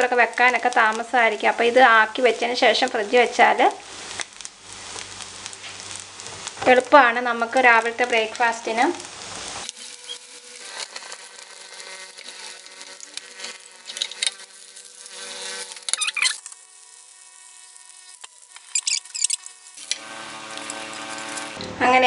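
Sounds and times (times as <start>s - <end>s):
food sizzling in a pan: 0.0s - 22.0s
spatula scraping a pan: 9.2s - 21.6s.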